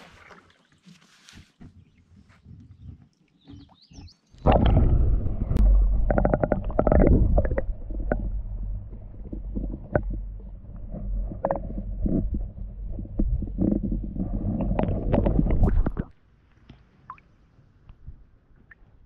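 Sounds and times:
muffled underwater rumble: 4.4 - 16.1.

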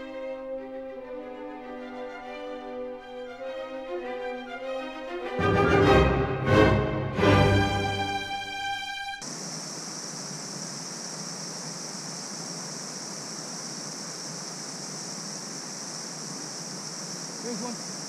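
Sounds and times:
creek water rushing: 5.3 - 18.0.

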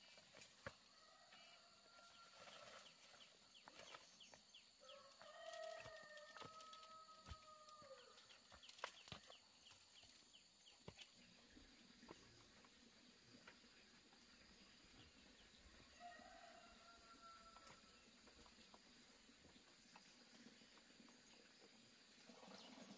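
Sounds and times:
faint rooster crowing: 0.9 - 3.0, 4.8 - 8.2, 15.8 - 18.0.

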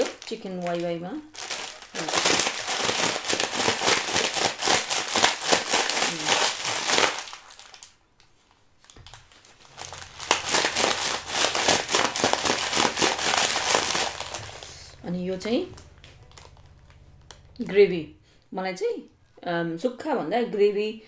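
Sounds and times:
dry noodles crunching: 0.0 - 8.0, 8.8 - 15.0
plastic packet crinkling: 0.0 - 17.5.

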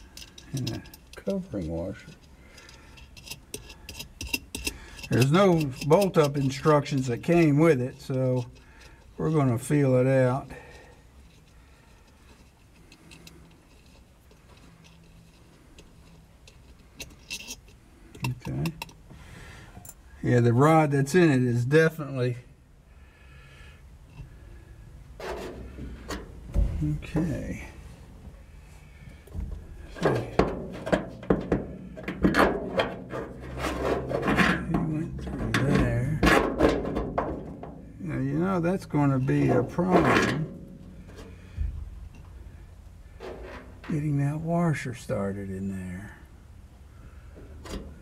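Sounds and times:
metal scraping and rubbing: 0.0 - 19.0, 25.1 - 45.2
small metal hardware clicking: 15.8 - 19.0
knocks and clunks on metal: 29.2 - 37.9.

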